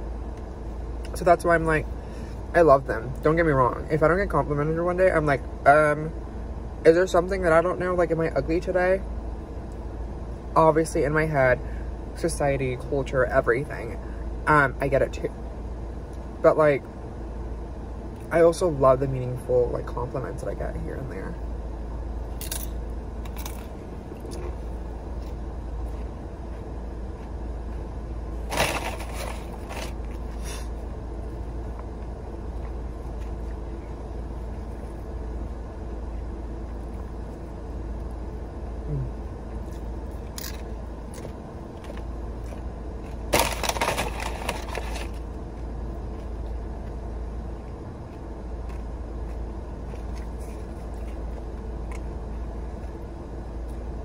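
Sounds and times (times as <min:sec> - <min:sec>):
low hum of car cabin: 0:00.0 - 0:54.0
crunching and chewing food: 0:21.1 - 0:54.0.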